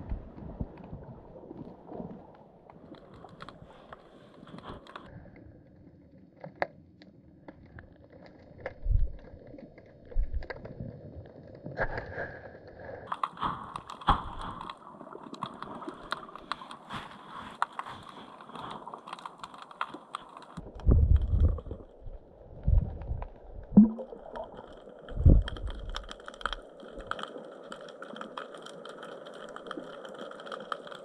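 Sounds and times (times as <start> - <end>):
low underwater rumble: 0.0 - 2.7, 8.4 - 12.9, 20.6 - 27.1
sharp underwater clicks and crackles: 0.0 - 31.0.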